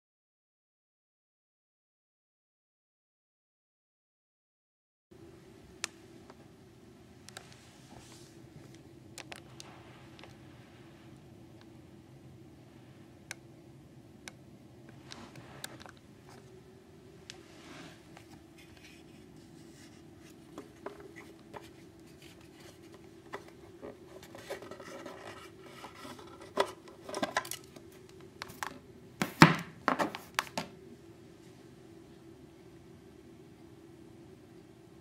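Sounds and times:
faint steady hum: 5.1 - 35.0
small clicks and scrapes: 14.9 - 16.5, 18.2 - 28.8.

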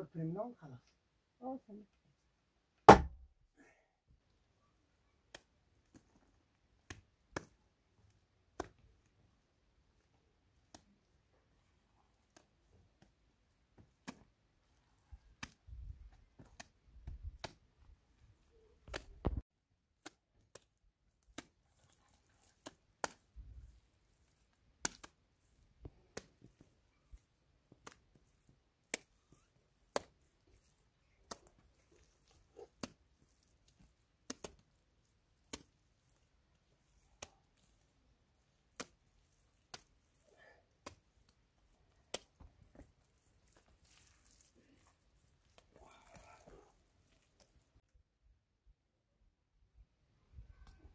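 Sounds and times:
wet mud slapped onto wall: 2.8 - 3.3, 5.3 - 7.6, 13.8 - 14.3, 15.4 - 17.6, 24.8 - 25.2
soft thuds of mud scooped: 40.8 - 47.7.

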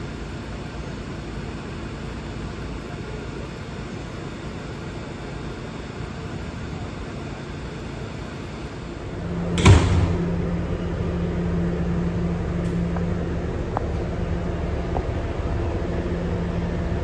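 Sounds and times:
subway car rumbling on track: 0.0 - 17.0
low motor hum: 8.8 - 17.0.

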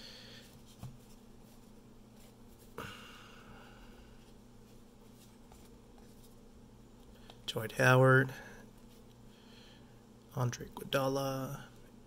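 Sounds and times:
low steady hum: 0.0 - 12.0.

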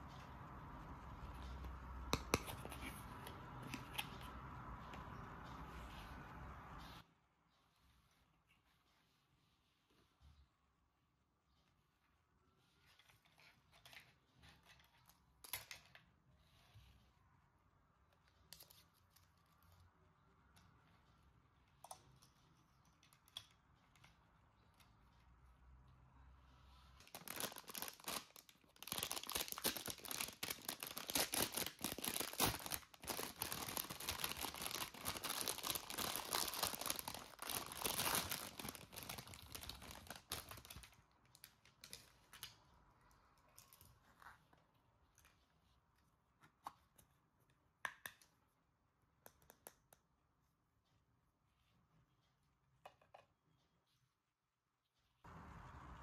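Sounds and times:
packaging tearing and crinkling: 27.0 - 41.0.

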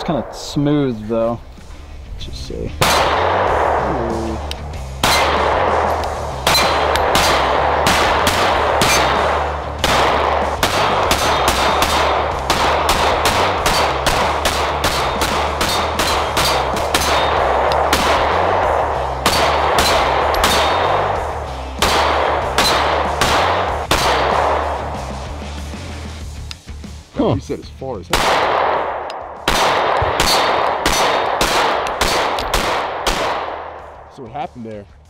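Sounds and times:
pistol shots in rapid strings: 2.8 - 25.0, 28.1 - 33.9.

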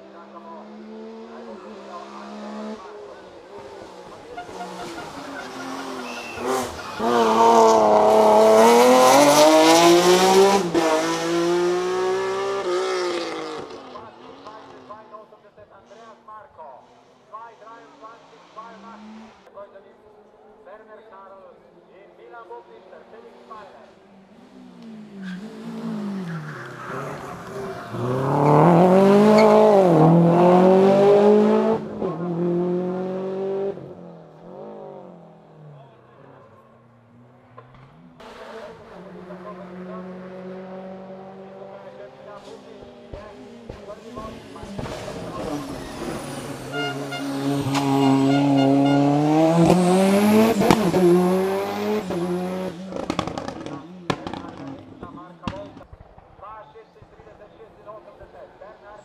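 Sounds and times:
race car engine at high revs: 0.0 - 14.9, 22.8 - 35.8, 37.4 - 55.8.

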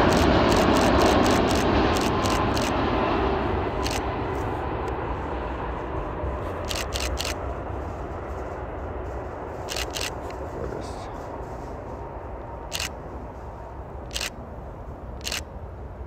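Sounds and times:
camera shutter clicks: 0.0 - 2.7, 3.8 - 4.0, 6.6 - 7.4, 9.7 - 10.3, 12.7 - 13.0, 14.1 - 14.4, 15.2 - 15.5
jet engines roaring: 0.0 - 16.0.

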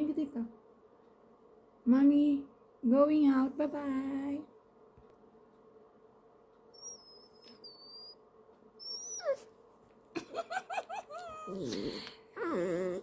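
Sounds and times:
dog whining and whimpering: 6.8 - 8.2, 8.8 - 9.6, 10.8 - 13.0.

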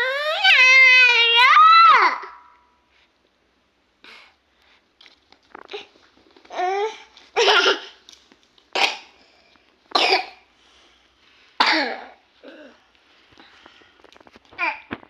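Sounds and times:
person coughing: 9.9 - 10.4, 11.6 - 12.8.

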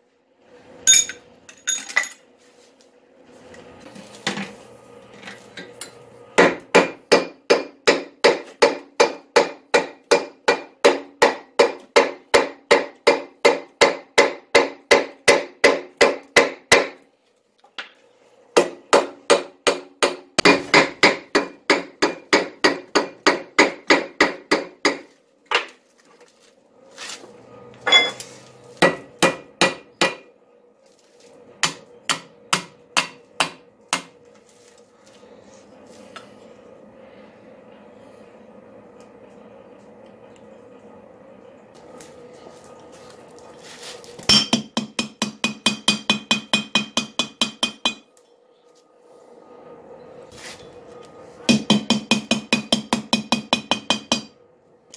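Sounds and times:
hammer striking anvil: 6.4 - 16.9, 31.6 - 34.1, 44.3 - 48.1, 51.5 - 54.3.

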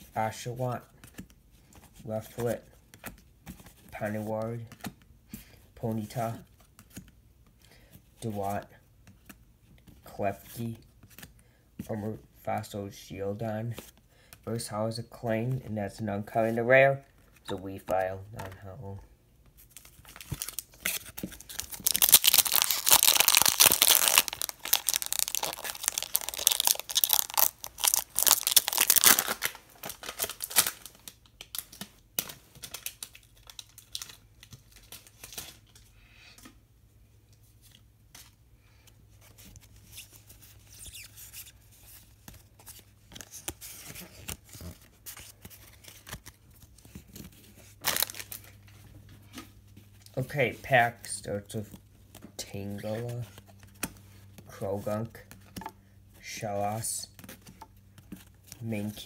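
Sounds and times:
cards rustling and clicking: 19.4 - 36.5, 39.1 - 50.1
foil wrapper tearing and crinkling: 20.2 - 31.8, 47.8 - 48.5.

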